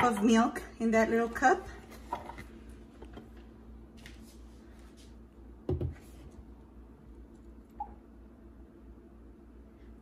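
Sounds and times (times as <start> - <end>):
dull knock on countertop: 5.7 - 6.0.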